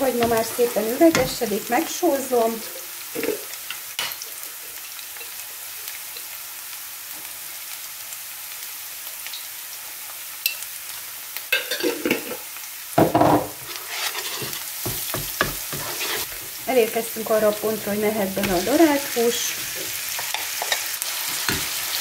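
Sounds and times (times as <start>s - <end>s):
onion sizzling in oil: 0.0s - 22.0s
wooden spatula scraping a pan: 13.5s - 16.7s, 17.8s - 21.8s.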